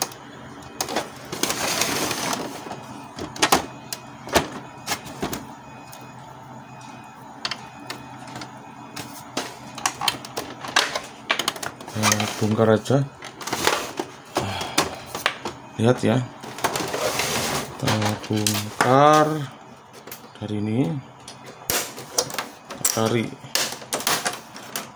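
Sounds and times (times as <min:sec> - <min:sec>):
plastic clicks and knocks in printer: 0:09.7 - 0:12.2.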